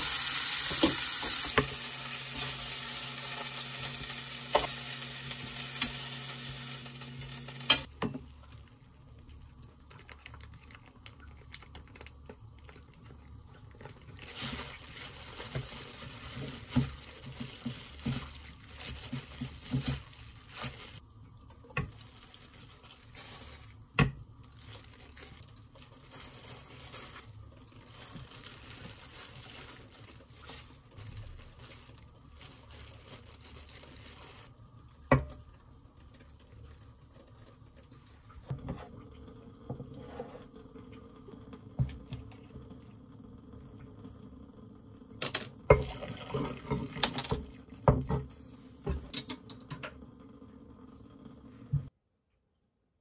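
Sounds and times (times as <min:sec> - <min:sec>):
meat sizzling in a frying pan: 0:00.0 - 0:07.9
utensils clicking on board and pan: 0:07.5 - 0:07.9.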